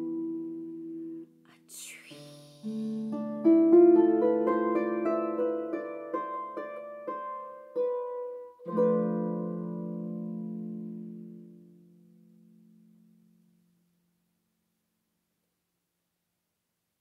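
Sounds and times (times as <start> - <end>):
harp plucked notes: 2.2 - 13.3.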